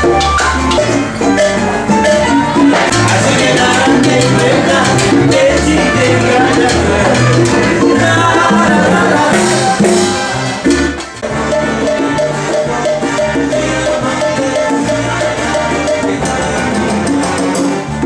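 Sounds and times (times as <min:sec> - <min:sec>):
drums: 0:00.0 - 0:13.4
acoustic guitar: 0:00.0 - 0:18.0
live salsa band: 0:00.0 - 0:18.0.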